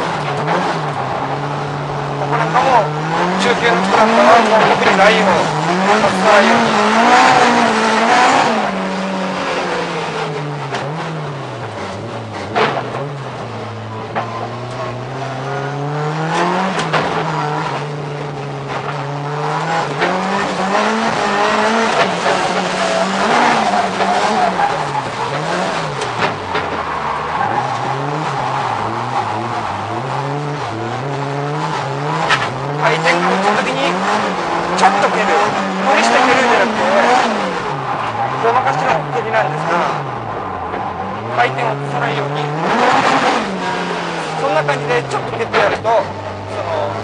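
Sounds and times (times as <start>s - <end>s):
car engine revving: 0.0s - 47.0s
tyres squealing: 12.0s - 47.0s.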